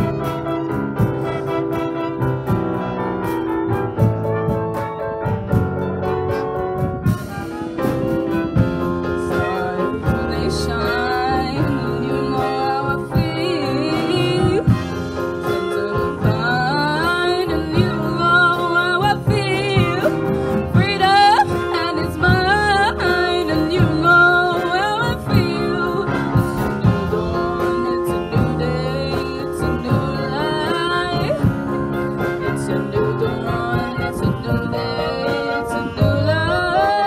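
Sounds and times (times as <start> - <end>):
small band holding chords: 0.0 - 37.0
girl singing into microphone: 9.2 - 14.9, 15.5 - 31.5.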